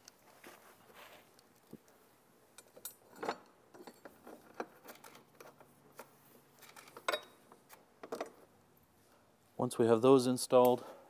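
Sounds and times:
metal fasteners clicking on metal plate: 2.6s - 8.4s.

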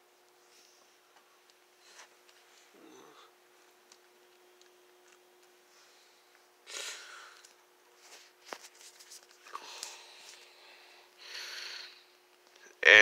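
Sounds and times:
faint steady hum: 0.0s - 13.0s
faint breaths or sniffs: 5.7s - 7.4s.

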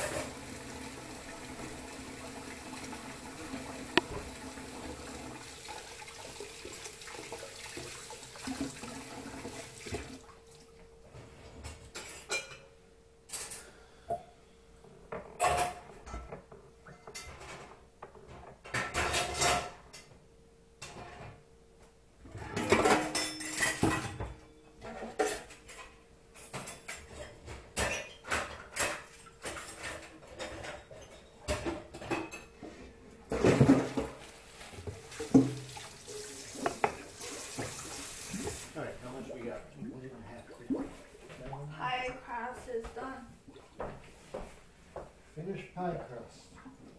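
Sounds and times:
tap water running: 0.0s - 10.7s, 33.3s - 41.4s
dishes and cutlery clattering: 11.7s - 13.7s, 15.2s - 20.1s, 22.5s - 32.7s, 33.3s - 34.2s.

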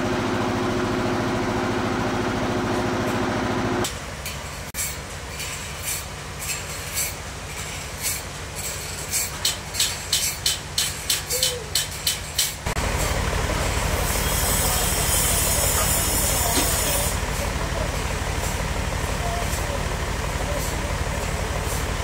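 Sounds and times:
bandsaw engine running: 0.0s - 3.9s, 12.6s - 22.0s.

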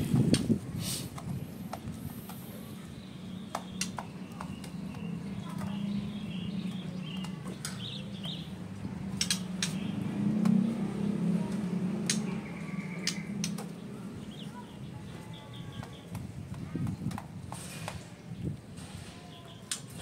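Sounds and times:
bird chirps: 1.8s - 8.6s, 12.1s - 16.2s
clicks inside wire cage: 3.5s - 8.4s, 9.1s - 10.7s, 12.0s - 13.9s, 19.5s - 20.0s.

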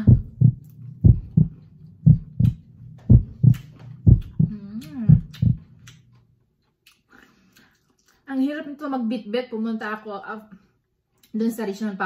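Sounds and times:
person humming: 0.0s - 0.5s, 4.3s - 5.6s
deep double thumps: 0.0s - 5.7s
low steady hum: 0.0s - 6.5s
crunching of chewed fried food: 5.7s - 8.3s.

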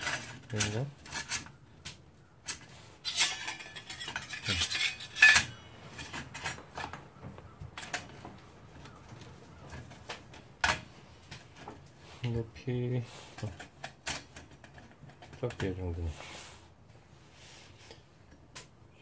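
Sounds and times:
metal parts clinking and scraping: 0.0s - 1.6s, 2.5s - 6.9s.

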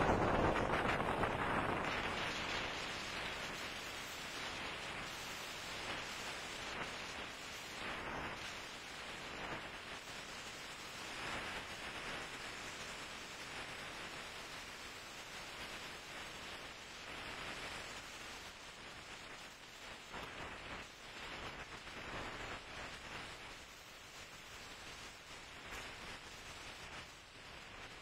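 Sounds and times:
windstorm rushing: 0.0s - 28.0s.

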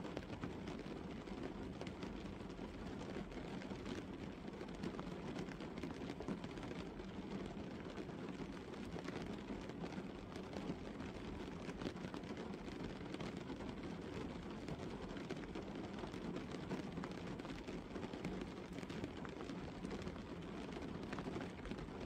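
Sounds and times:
rain pattering on car: 0.1s - 22.0s.

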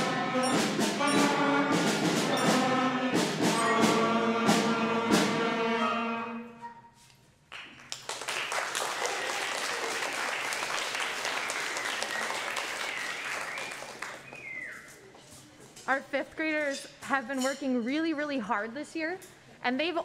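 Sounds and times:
school band of brass and woodwinds: 0.0s - 6.8s
audience applauding: 7.5s - 14.8s.

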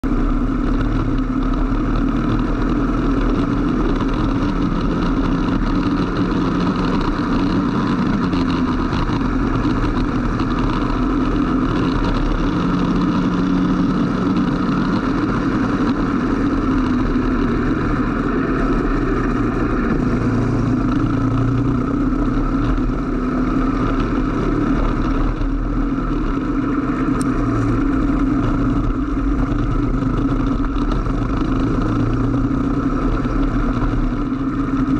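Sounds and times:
kart engine revving: 0.0s - 34.9s.

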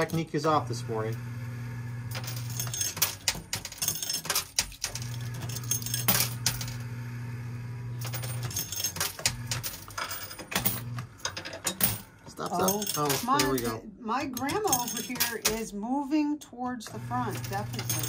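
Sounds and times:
machine low hum: 0.0s - 4.1s, 4.8s - 13.7s, 16.8s - 18.0s
coins clinking and clattering: 2.1s - 6.8s, 8.0s - 15.7s, 17.2s - 18.0s.

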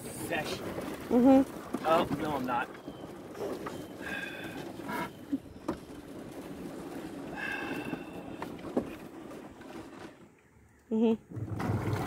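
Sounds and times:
small boat motor running: 0.0s - 12.0s.

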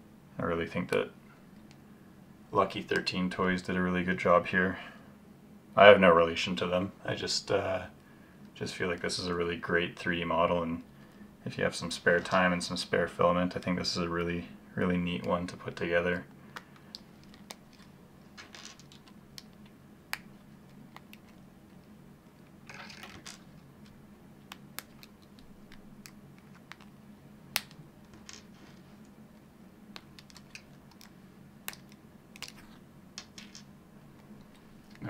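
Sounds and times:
plastic parts clicking and snapping: 16.5s - 21.4s, 22.7s - 26.9s, 29.9s - 35.0s.

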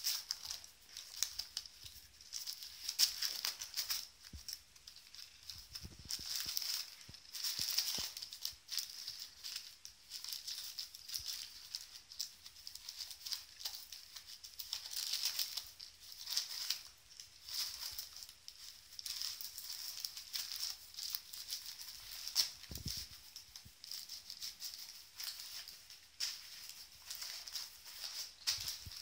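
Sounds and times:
dog chewing and tearing paper: 0.0s - 29.0s
paper crinkling: 0.0s - 29.0s.

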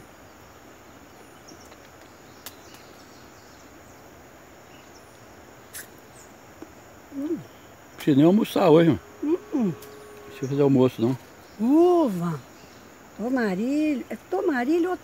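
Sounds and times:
steady low hiss: 0.0s - 15.0s
voice murmuring: 7.1s - 7.5s.

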